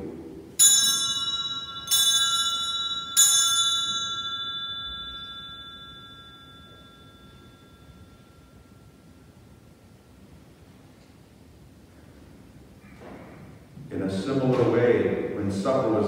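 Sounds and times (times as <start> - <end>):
altar bell ringing: 0.6 - 10.4.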